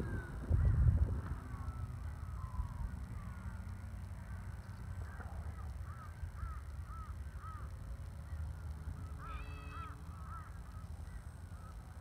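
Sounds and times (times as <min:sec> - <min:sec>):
wind on microphone: 0:00.0 - 0:03.1.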